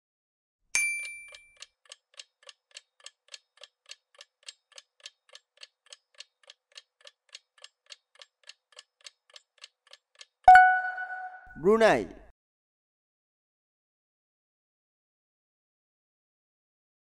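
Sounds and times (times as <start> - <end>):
clock-like timer ticking: 1.0 - 11.2
chime ringing: 10.5 - 11.6.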